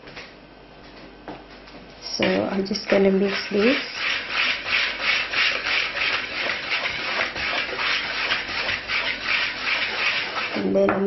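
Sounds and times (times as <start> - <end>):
whisk scraping through flour: 2.2 - 10.8.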